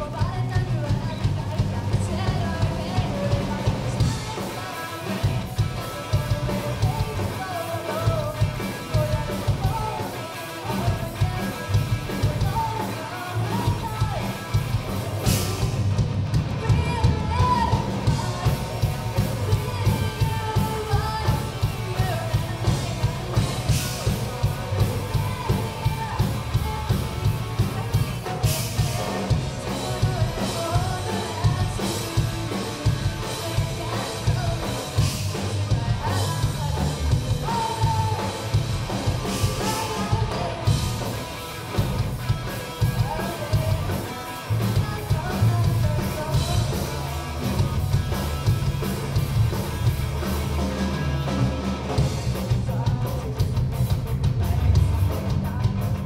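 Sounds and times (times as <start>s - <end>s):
woman singing lead vocal: 0.0s - 15.7s, 16.5s - 41.2s, 42.6s - 47.2s, 52.0s - 56.0s
live rock band playing: 0.0s - 56.0s.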